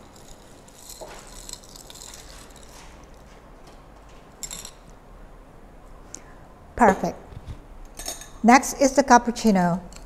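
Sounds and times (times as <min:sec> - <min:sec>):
ice cubes clinking in a glass: 0:00.0 - 0:02.8, 0:04.4 - 0:04.8.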